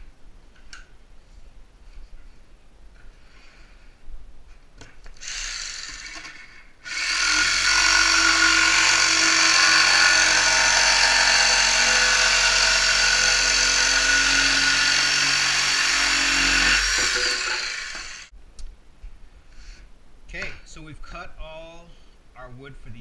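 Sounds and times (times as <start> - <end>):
jigsaw cutting plywood: 5.2 - 18.3.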